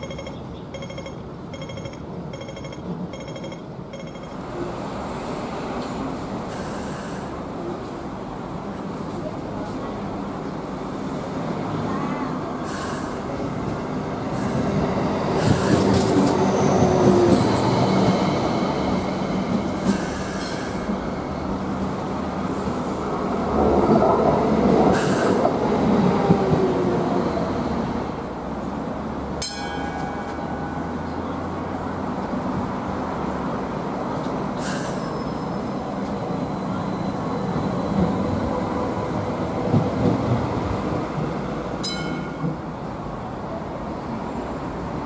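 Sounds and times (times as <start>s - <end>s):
train humming: 0.0s - 45.0s
steel wheels squealing: 34.6s - 38.3s.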